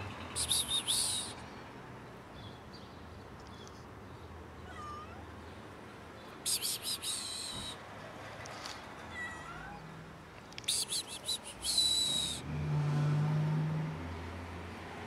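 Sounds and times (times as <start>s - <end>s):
cat meowing: 4.6s - 5.3s, 9.1s - 9.9s.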